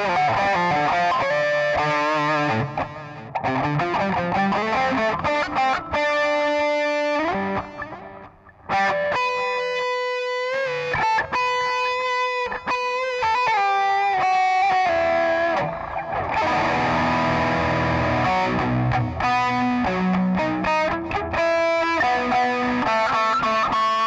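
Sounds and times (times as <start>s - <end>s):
overdriven electric guitar lead: 0.0s - 24.0s.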